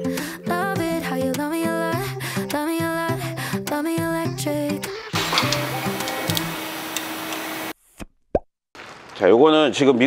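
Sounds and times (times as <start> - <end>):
music with sliding melody and beat: 4.2 - 7.4.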